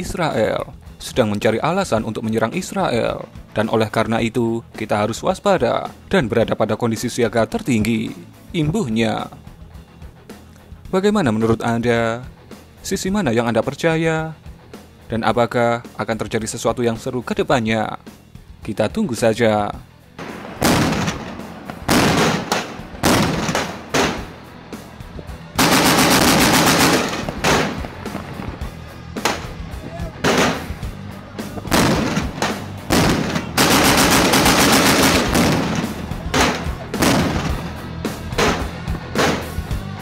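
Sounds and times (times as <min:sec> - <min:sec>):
automatic gunfire: 0:20.2 - 0:24.3, 0:25.6 - 0:28.2, 0:30.2 - 0:30.7, 0:31.7 - 0:37.6.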